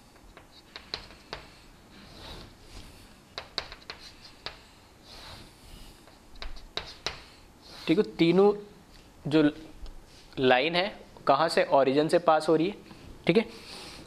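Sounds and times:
chalk tapping on chalkboard: 0:00.1 - 0:01.6, 0:03.3 - 0:05.3, 0:06.0 - 0:08.0
chalk scraping strokes: 0:00.2 - 0:08.4.

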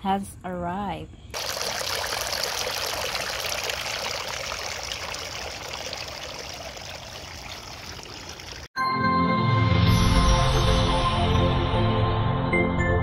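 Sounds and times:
fountain water splashing: 0:01.4 - 0:08.7.

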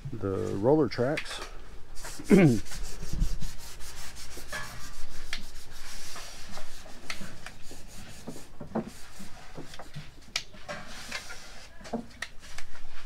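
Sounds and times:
sandpaper rubbing on wood: 0:02.0 - 0:10.0.

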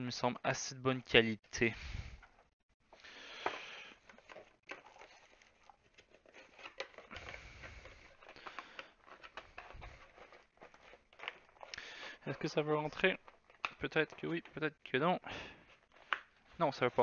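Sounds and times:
plastic packaging rustling: 0:03.2 - 0:14.7.

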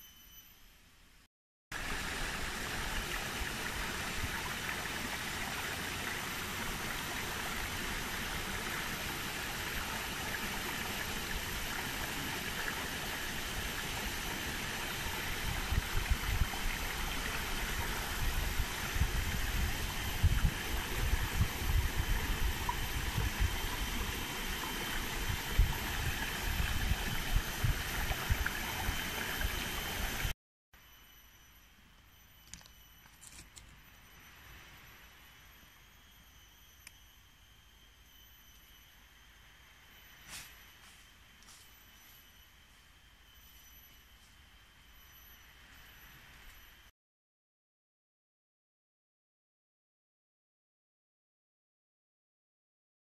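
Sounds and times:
running water rushing: 0:01.8 - 0:30.3
wind buffeting microphone: 0:15.3 - 0:24.2, 0:24.9 - 0:29.5.

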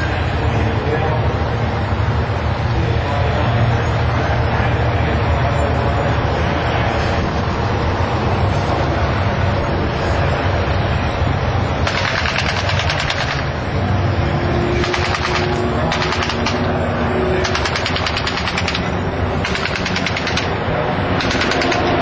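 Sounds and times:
engine drone: 0:00.0 - 0:22.0
simulated machine-gun fire: 0:11.8 - 0:13.5, 0:14.8 - 0:16.8, 0:17.4 - 0:20.6, 0:21.2 - 0:22.0.

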